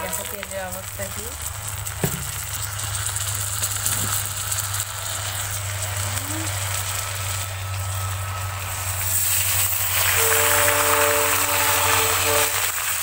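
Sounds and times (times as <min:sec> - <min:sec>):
oil sizzling in a wok: 0:00.0 - 0:13.0.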